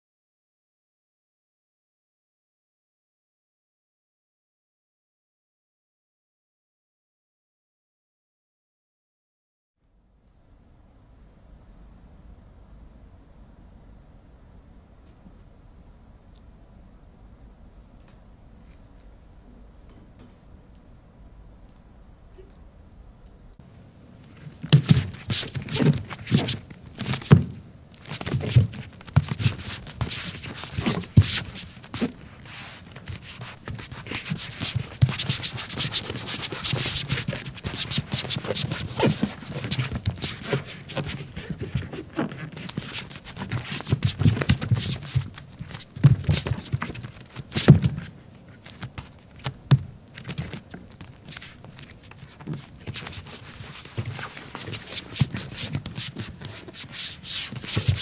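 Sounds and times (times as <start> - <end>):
bare feet on floor: 24.2 - 58.0.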